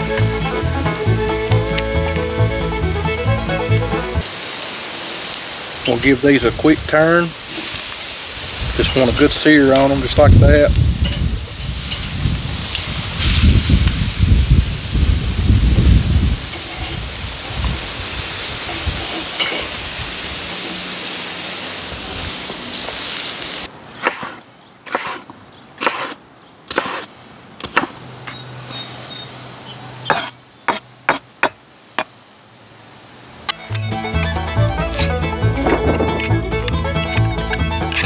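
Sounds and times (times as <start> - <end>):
meat and vegetables sizzling on grill: 0.0 - 23.7
knife chopping on wooden board: 24.0 - 28.0.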